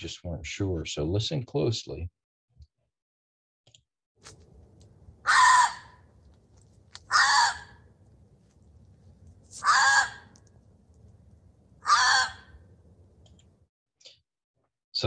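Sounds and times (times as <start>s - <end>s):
fox harsh calls: 5.2s - 6.1s, 7.0s - 7.8s, 9.6s - 10.4s, 11.8s - 12.6s
faint low hum: 5.9s - 13.7s.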